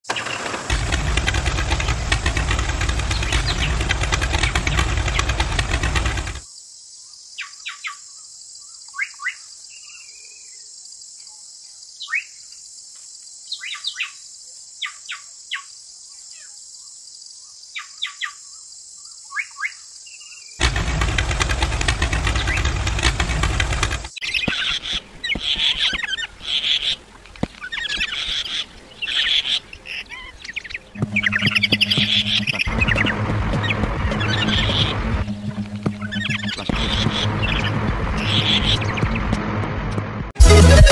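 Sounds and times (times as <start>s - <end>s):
bird chirping: 0.2s - 6.4s, 14.8s - 39.2s
small motor running: 0.2s - 6.4s, 20.6s - 24.1s.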